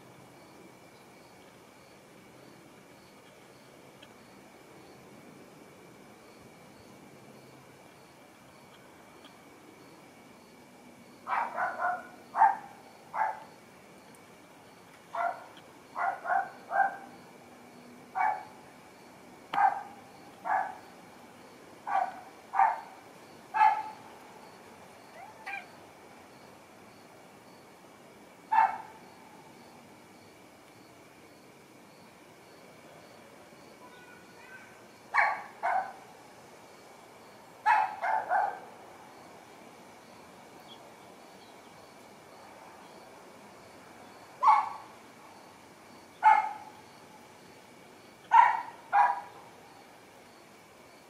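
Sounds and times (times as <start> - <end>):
dog barking: 11.3 - 13.5, 15.2 - 17.1, 18.2 - 18.5, 19.5 - 20.8, 21.9 - 23.0, 23.6 - 24.0, 28.5 - 28.9, 35.1 - 36.0, 37.6 - 38.6, 44.4 - 44.9, 46.2 - 46.7, 48.3 - 49.3.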